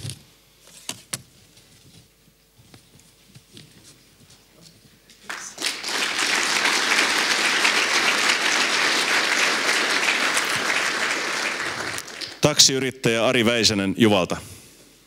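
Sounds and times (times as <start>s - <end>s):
audience applause: 5.3s - 12.7s.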